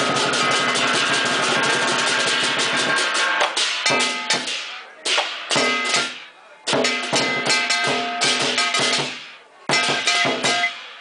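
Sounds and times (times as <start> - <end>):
fast drum roll: 0.0 - 4.7
accented percussion strikes: 0.0 - 11.0
ringing cymbals: 0.0 - 11.0.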